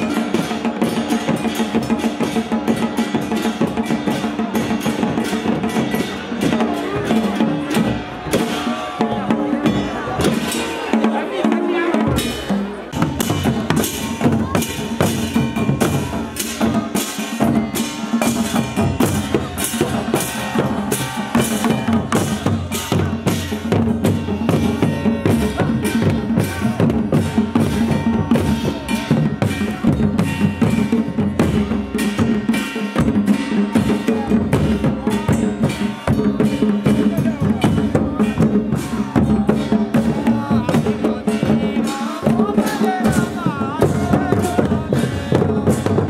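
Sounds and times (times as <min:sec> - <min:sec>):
folk drums beating: 0:00.0 - 0:46.0.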